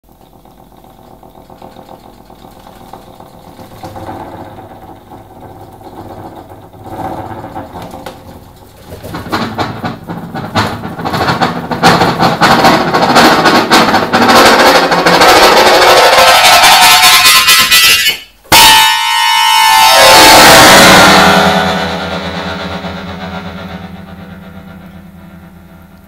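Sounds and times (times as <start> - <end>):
accordion chords: 13.5 - 26.0.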